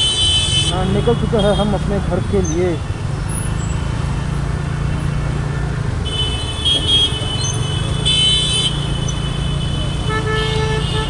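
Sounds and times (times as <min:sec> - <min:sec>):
vehicle horns honking: 0:00.0 - 0:02.0, 0:05.6 - 0:11.0.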